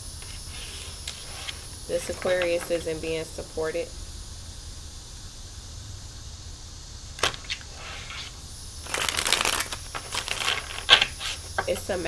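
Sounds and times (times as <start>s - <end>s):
cards snapping: 7.2s - 11.9s
cards riffling: 7.2s - 12.0s.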